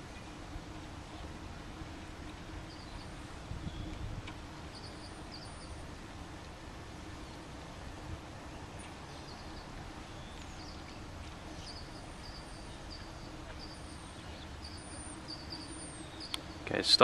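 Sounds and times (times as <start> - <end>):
bird chirping: 2.6 - 4.0, 4.7 - 5.8, 8.4 - 17.0.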